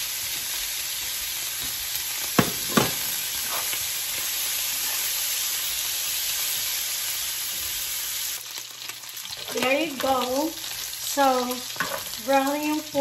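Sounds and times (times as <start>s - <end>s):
meat sizzling in a skillet: 0.0s - 13.0s.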